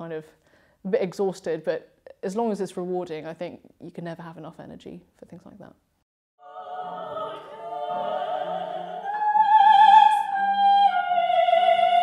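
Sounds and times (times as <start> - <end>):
women singing operatically: 6.4 - 12.0.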